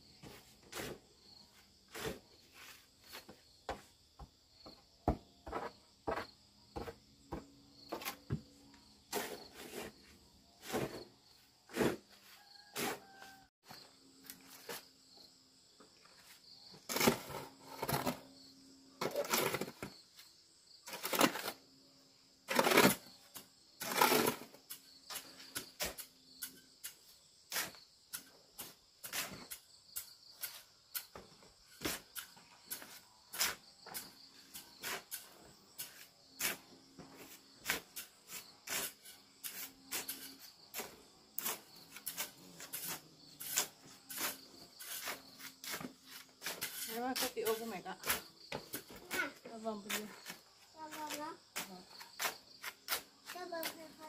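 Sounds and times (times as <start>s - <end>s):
insects chirring: 12.3s - 54.0s.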